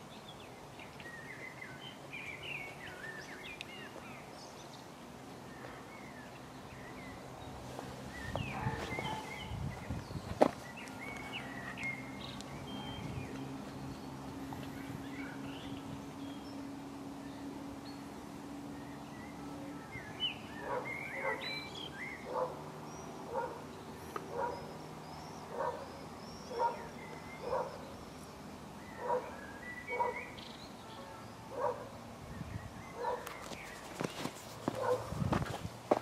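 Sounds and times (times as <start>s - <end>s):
small birds chirping: 0.0s - 36.0s
dog barking: 8.5s - 9.4s, 20.6s - 21.5s, 22.3s - 22.6s, 23.3s - 23.6s, 24.3s - 24.7s, 25.5s - 25.9s, 26.5s - 27.8s, 29.0s - 30.2s, 31.5s - 31.9s, 33.0s - 33.3s, 34.8s - 35.1s.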